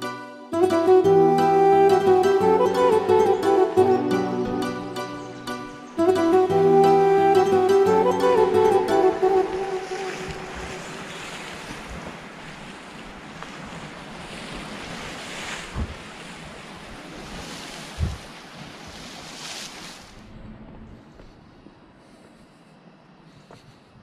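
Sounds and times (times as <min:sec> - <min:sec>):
sea surf washing in and out: 0:00.0 - 0:22.0
wind on the microphone: 0:09.6 - 0:22.3.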